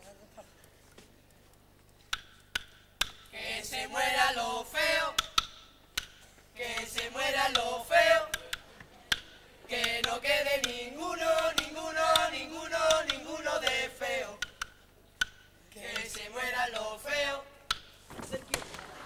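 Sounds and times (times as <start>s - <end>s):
young men singing together: 3.3s - 5.4s, 6.6s - 8.6s, 9.6s - 14.6s, 15.7s - 17.6s.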